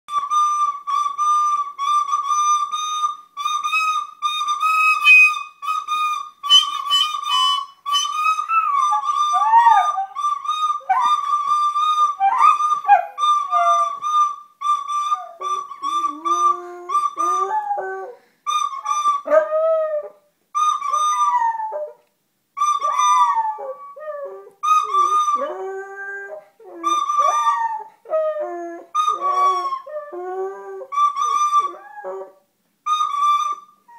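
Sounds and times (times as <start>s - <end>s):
flute high note: 0.1s - 20.0s, 22.6s - 27.7s, 28.5s - 32.2s
small dog howling: 8.4s - 10.2s, 22.8s - 30.1s.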